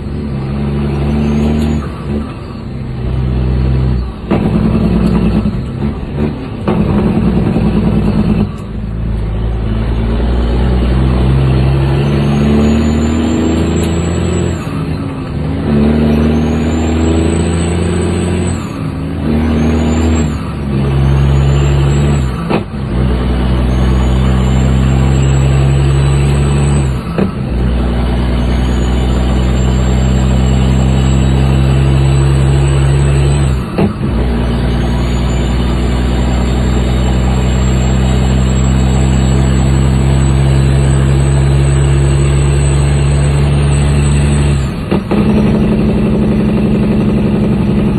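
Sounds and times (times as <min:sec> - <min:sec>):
diesel truck engine pulling hard: 0:00.0 - 0:47.9
high whistle: 0:11.8 - 0:14.8, 0:28.0 - 0:33.7, 0:34.4 - 0:44.8.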